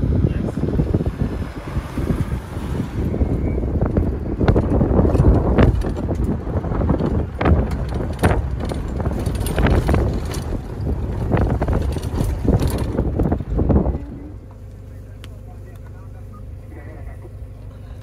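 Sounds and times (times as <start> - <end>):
wind buffeting microphone: 0.0 - 14.7
vehicle driving on dirt track: 0.0 - 18.0
knocks and rattles: 3.9 - 14.6.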